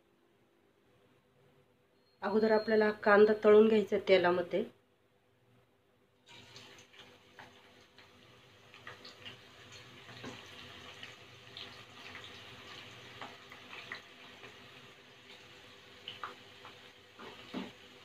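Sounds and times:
onion deep-frying in oil: 6.2 - 18.0.

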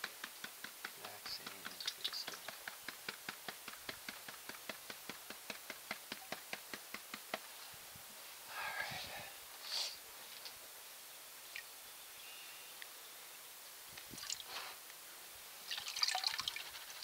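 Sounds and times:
plastic pan tapped and shaken: 0.0 - 7.4.

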